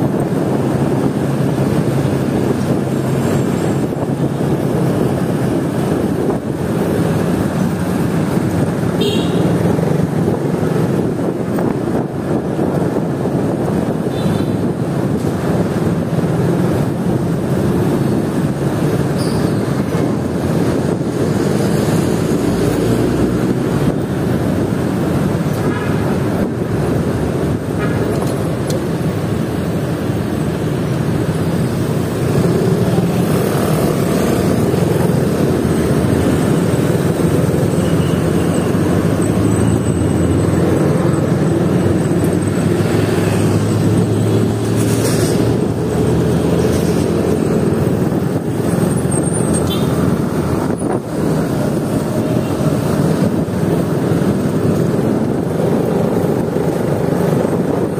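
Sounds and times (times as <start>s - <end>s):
nearby traffic noise: 13.9s - 57.9s.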